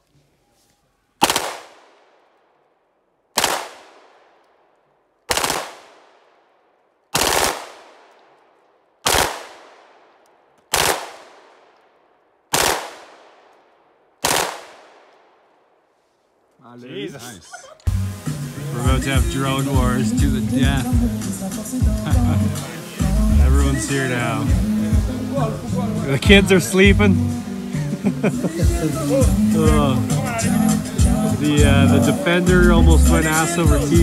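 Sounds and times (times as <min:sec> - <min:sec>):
pistol shots with echo: 0:01.2 - 0:02.1, 0:03.4 - 0:04.4, 0:05.3 - 0:06.4, 0:07.1 - 0:11.8, 0:12.5 - 0:15.4.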